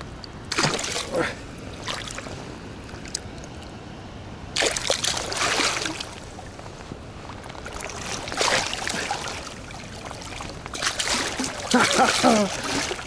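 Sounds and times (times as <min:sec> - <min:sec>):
fish thrashing and splashing water: 0:00.5 - 0:01.1, 0:04.6 - 0:06.3, 0:07.6 - 0:13.0.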